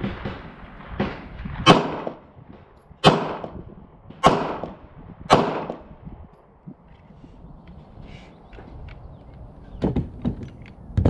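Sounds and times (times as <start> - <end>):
pistol shots: 0.0 - 2.4, 3.0 - 5.9.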